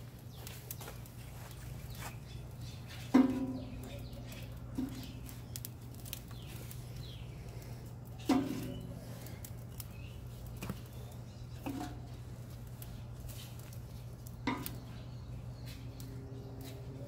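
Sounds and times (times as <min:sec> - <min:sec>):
firewood knocking on metal: 0:03.0 - 0:05.7, 0:08.2 - 0:09.0, 0:11.6 - 0:12.2, 0:14.4 - 0:15.0.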